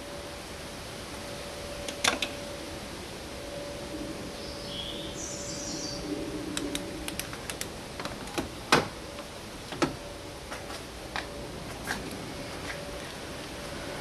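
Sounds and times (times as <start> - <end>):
bird chirps: 4.4 - 6.1.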